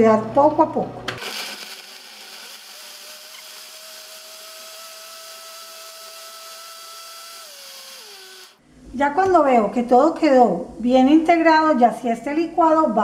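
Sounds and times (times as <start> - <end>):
blender motor whining: 1.2 - 8.6.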